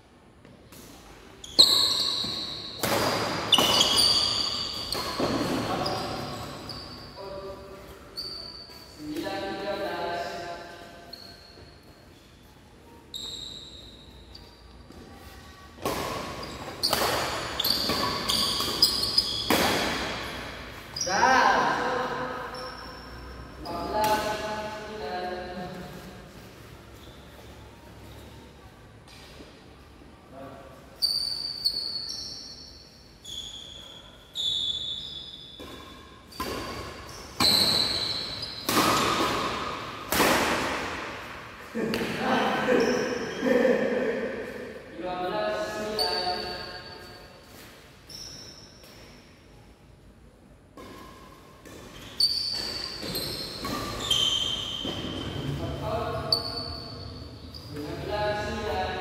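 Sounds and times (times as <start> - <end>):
rackets smacking shuttlecock: 0.7 - 6.6, 15.8 - 20.7, 35.6 - 42.2.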